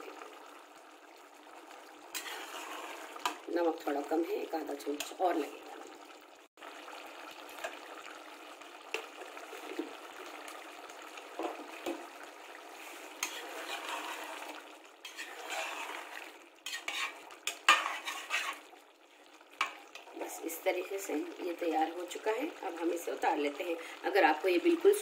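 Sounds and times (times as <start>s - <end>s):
curry simmering sizzle: 0.0s - 25.0s
spoon scraping and knocking pot: 16.7s - 18.6s.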